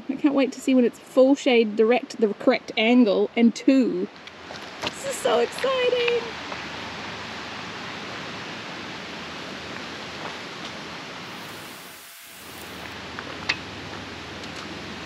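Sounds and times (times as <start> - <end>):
steady rushing hiss: 10.9 - 13.0.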